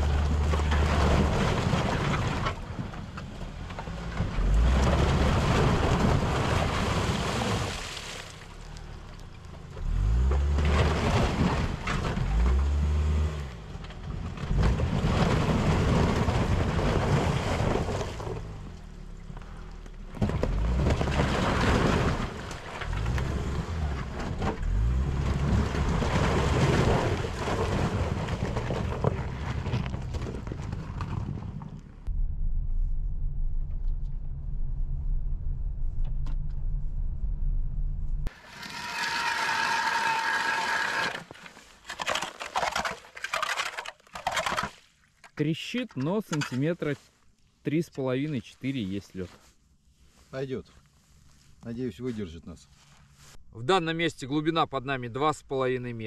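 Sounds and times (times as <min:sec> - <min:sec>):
ice breaking and water splashing: 0:00.0 - 0:02.7, 0:03.8 - 0:12.7, 0:14.2 - 0:31.2, 0:38.3 - 0:46.4
car engine revving: 0:09.8 - 0:13.7, 0:22.8 - 0:26.7.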